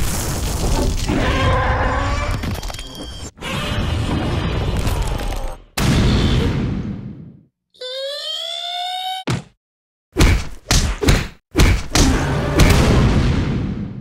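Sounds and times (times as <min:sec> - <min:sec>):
rumbling booms and crashes: 0:12.6 - 0:14.0.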